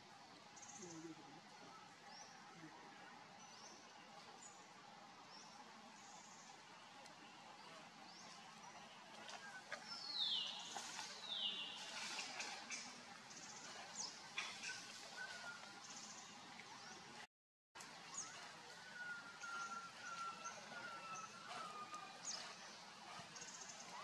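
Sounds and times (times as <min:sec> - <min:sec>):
bird chirps and calls: 0:18.2 - 0:24.0.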